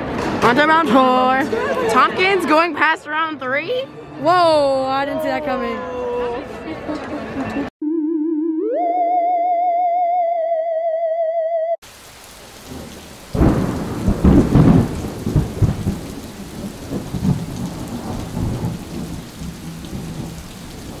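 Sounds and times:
wavering electronic tone: 7.8s - 11.8s
rain hiss: 11.8s - 21.0s
rolling thunder: 12.5s - 21.0s.

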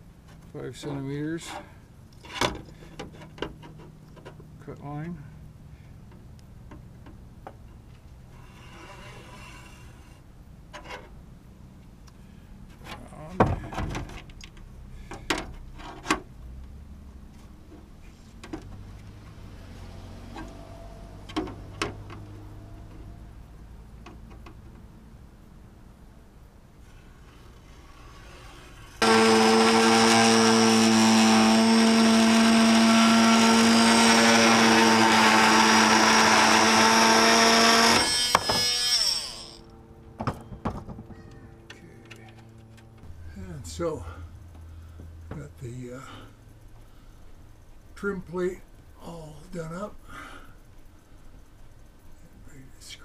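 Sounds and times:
steady low hum: 0.0s - 53.0s
oscillating multi-tool buzzing: 27.9s - 39.7s
tool winding down whine: 27.9s - 39.7s.

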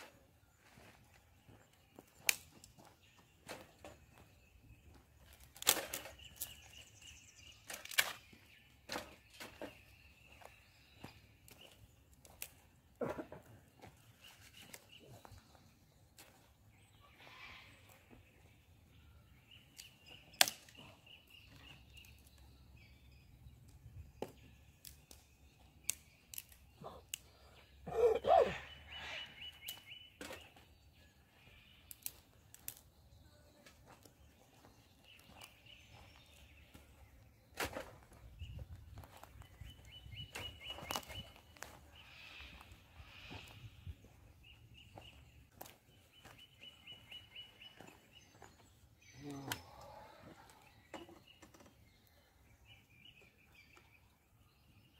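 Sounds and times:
camp gear clicks and knocks: 5.4s - 6.6s.

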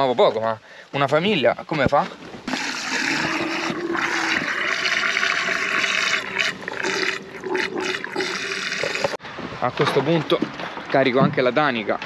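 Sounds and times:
water running into a tank: 2.5s - 9.2s.

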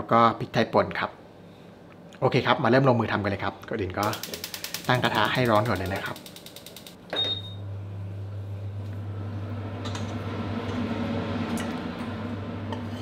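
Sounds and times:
appliance humming: 3.8s - 13.0s
short high beep: 7.2s - 7.6s.

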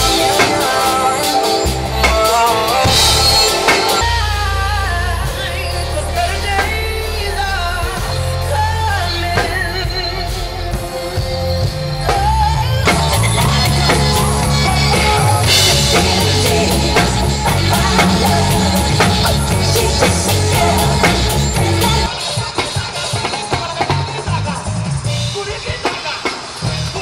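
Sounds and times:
deep bass: 0.0s - 0.4s, 1.6s - 22.1s
drum kit with cymbals: 0.0s - 27.0s
person singing: 0.0s - 27.0s.

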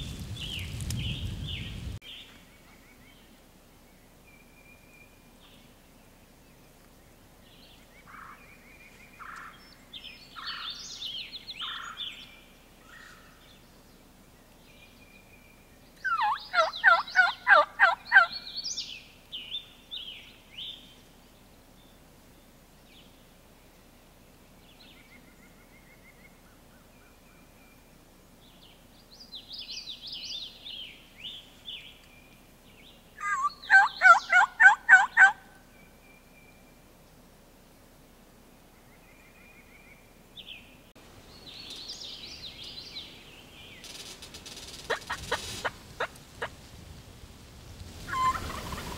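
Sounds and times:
turkey gobbling: 16.1s - 18.3s, 33.2s - 35.5s, 44.9s - 46.6s, 48.1s - 48.9s.

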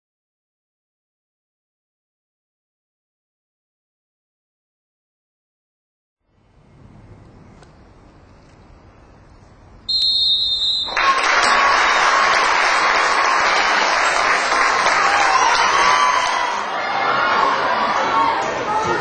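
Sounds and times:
referee's whistle blast: 9.9s - 11.1s
crowd applause: 10.8s - 19.0s.

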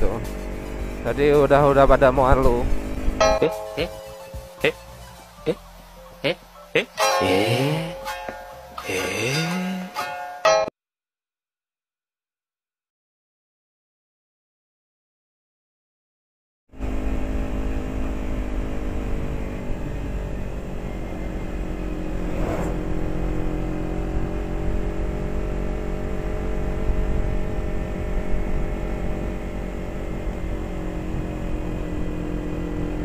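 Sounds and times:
motorcycle engine running: 0.0s - 5.9s, 16.8s - 33.0s
wind rumble on microphone: 19.3s - 33.0s.

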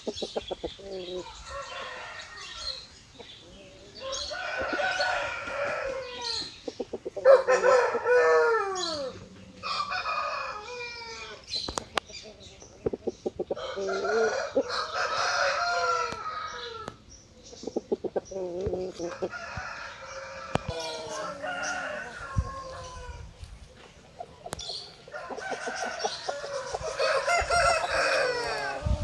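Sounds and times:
rooster crowing: 1.2s - 2.8s, 4.0s - 6.4s, 7.2s - 11.4s, 13.6s - 16.9s, 19.1s - 23.2s, 25.1s - 29.0s.

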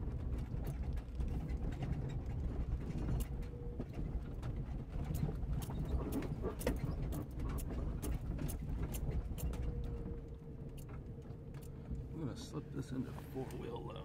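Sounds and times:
body and suspension rattling: 0.0s - 14.0s
engine and road rumble: 0.0s - 14.0s.

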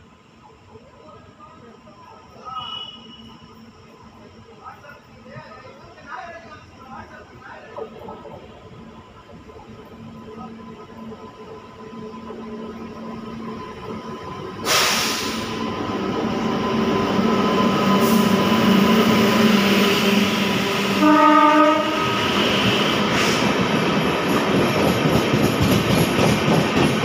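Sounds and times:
train rumbling past: 0.0s - 27.0s
train horn blast: 20.9s - 22.8s.

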